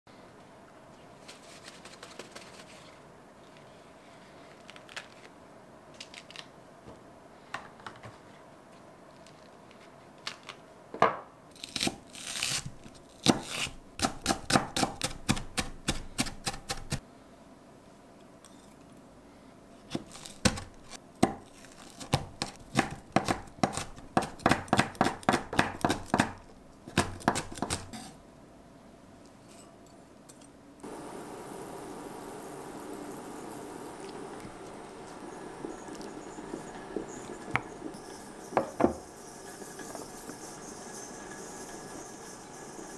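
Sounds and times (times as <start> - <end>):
knife chopping on wooden board: 22.1 - 27.9.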